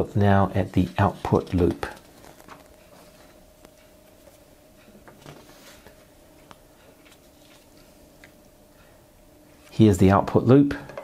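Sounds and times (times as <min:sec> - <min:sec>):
faint steady hum: 0:00.0 - 0:11.0
paper sheets rustling: 0:00.6 - 0:03.4, 0:05.2 - 0:06.1, 0:07.0 - 0:07.9.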